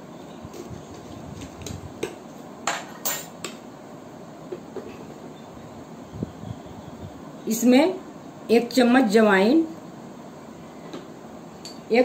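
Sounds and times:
spoon clinking on metal dishes: 0:02.7 - 0:03.4.

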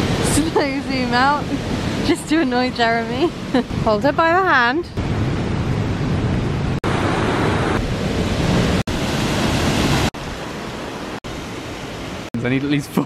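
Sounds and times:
whitewater rushing: 0:06.8 - 0:12.3.

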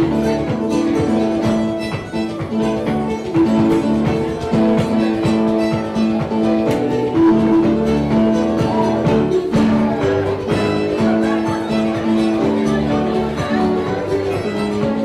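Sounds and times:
dance band playing: 0:00.0 - 0:15.0
fiddle melody: 0:00.0 - 0:15.0
guitar chords: 0:00.0 - 0:15.0.

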